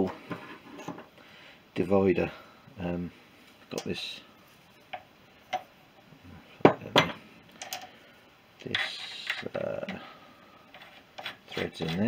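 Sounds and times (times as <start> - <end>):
scraping rustle: 10.7 - 12.0.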